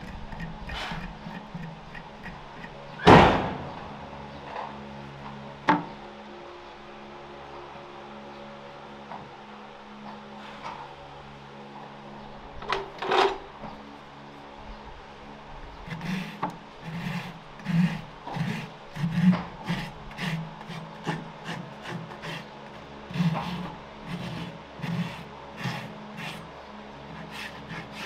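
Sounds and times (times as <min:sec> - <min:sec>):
rasp filing a hoof: 0:00.0 - 0:03.5, 0:15.8 - 0:28.0.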